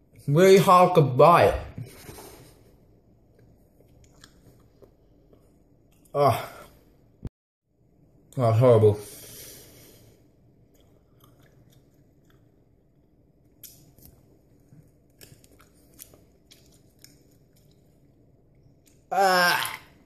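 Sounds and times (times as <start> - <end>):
faint chewing: 3.3 - 6.1, 10.7 - 12.7, 13.5 - 19.1.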